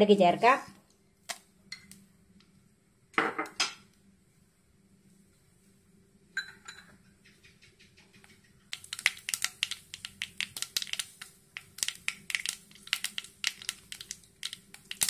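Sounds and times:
mustard seeds popping in oil: 7.4s - 15.0s.

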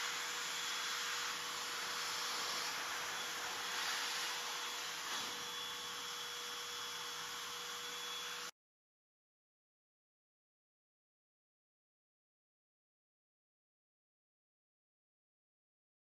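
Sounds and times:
vacuum cleaner running: 0.0s - 8.6s.

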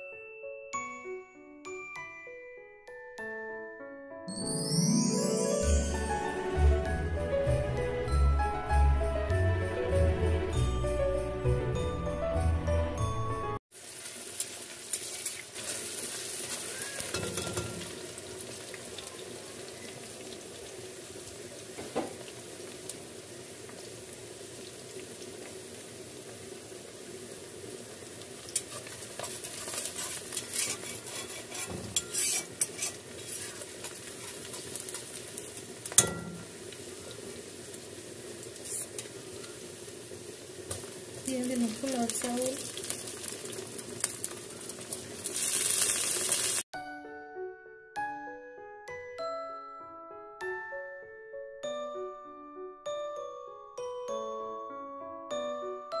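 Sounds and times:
oil sizzling in deep-frying pan: 13.7s - 46.7s
spatula knocking and scraping pan: 28.6s - 35.0s.

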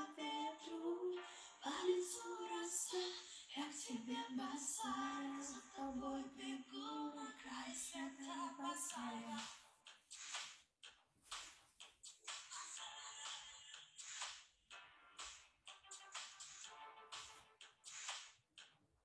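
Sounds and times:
woman singing: 0.0s - 9.6s, 12.5s - 13.9s.

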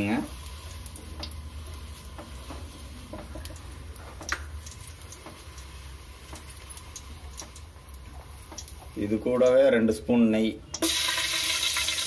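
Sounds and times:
oil crackling and popping: 0.0s - 10.0s, 10.7s - 12.0s.

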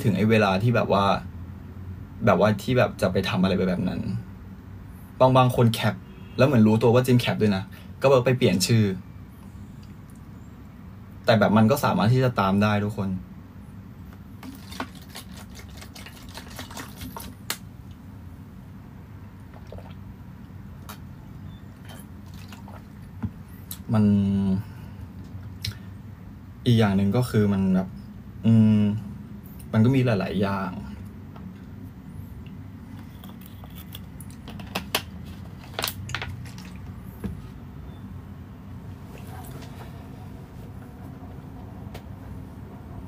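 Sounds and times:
low steady hum: 0.0s - 43.0s
plastic bottle crinkling and clicking: 14.4s - 17.6s, 33.3s - 37.0s.

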